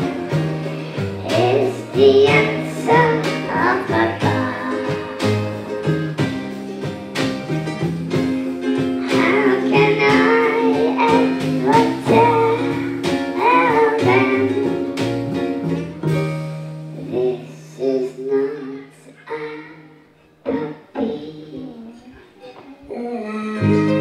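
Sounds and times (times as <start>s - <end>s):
girl singing: 0.0s - 5.9s, 9.0s - 15.0s, 16.9s - 24.0s
live band playing: 0.0s - 18.0s, 23.6s - 24.0s.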